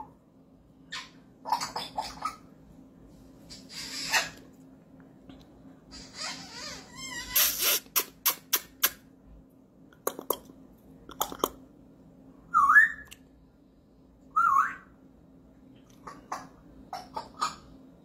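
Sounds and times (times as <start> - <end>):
parrot whistling: 12.5 - 13.1, 14.3 - 15.0.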